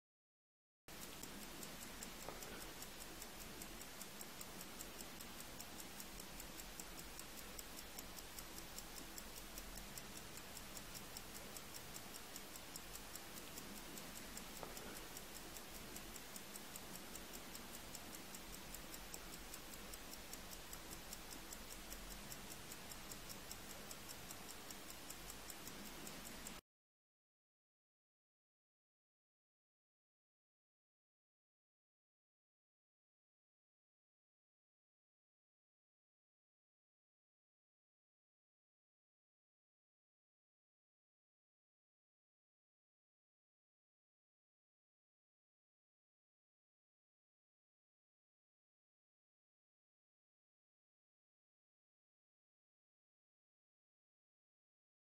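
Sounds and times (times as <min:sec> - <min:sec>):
watch ticking: 0:00.9 - 0:26.6.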